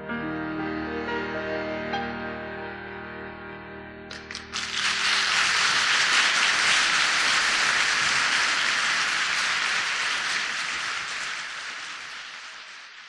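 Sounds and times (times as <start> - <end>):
crowd clapping: 4.1 - 13.0.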